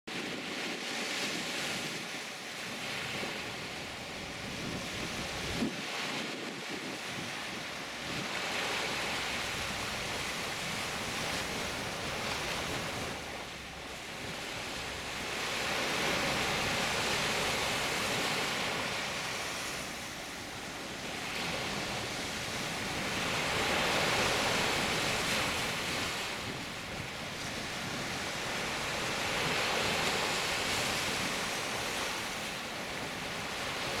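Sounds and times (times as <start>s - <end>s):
waves washing up a beach: 0.1s - 34.0s.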